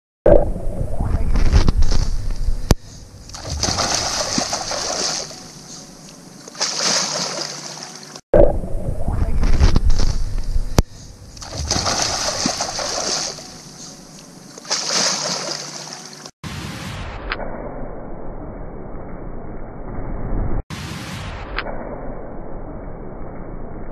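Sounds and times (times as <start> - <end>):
water splashing and sloshing: 1.2 - 8.2, 9.3 - 16.4.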